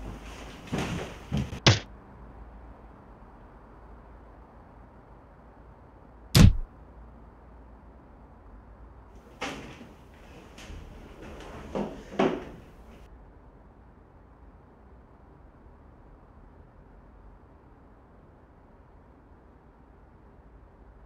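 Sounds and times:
sharp thump: 1.5 - 1.8, 6.4 - 6.7.

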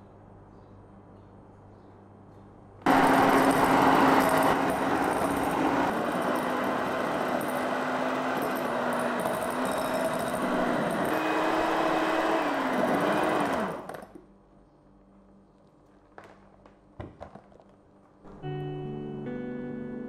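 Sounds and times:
electric hand mixer whirring: 2.9 - 14.2.

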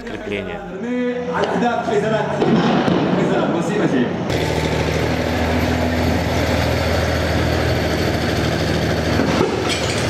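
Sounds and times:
tank diesel engines running: 4.3 - 10.0.

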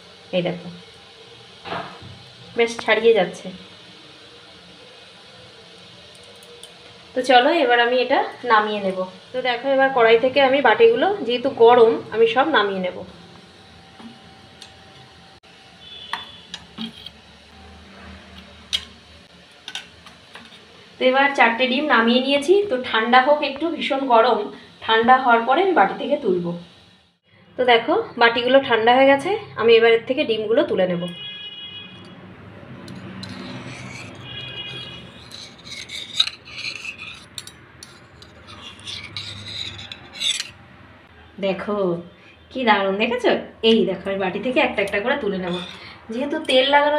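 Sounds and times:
knife scraping metal bowl: 16.2 - 17.2, 32.8 - 40.6, 45.4 - 46.7
metal bowls clinking on plate: 45.5 - 46.7.

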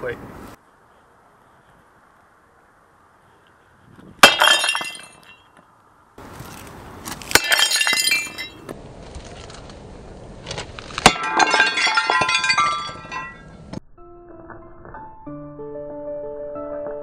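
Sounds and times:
sledgehammer smashing a plate: 4.2 - 5.2, 7.3 - 8.5, 11.0 - 13.4
shards clattering and tinkling: 7.4 - 8.6, 11.1 - 13.6.

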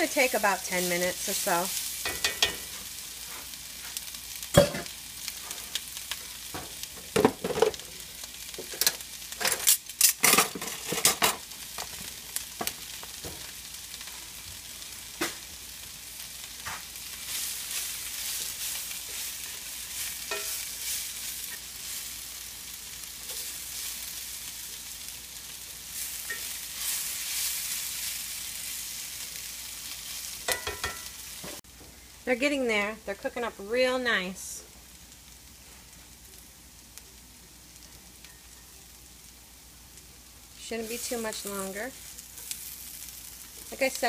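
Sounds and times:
spatula scraping skillet: 0.0 - 14.4, 16.6 - 25.0, 25.9 - 29.2, 40.6 - 44.0
food sizzling in oil: 0.0 - 44.0.

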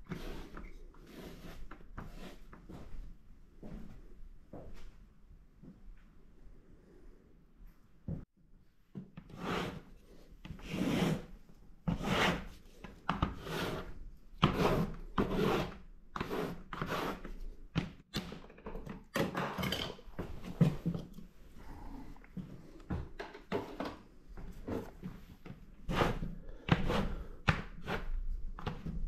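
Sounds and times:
paintbrush scrubbing paper: 0.1 - 2.5.

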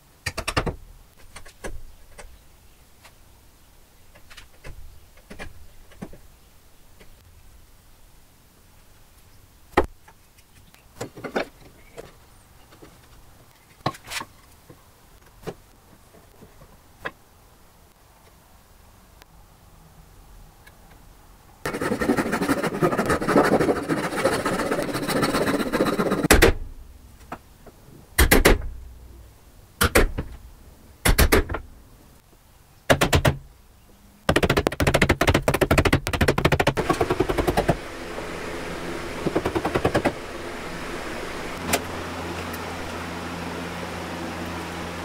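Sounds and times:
low hum: 36.8 - 45.0.

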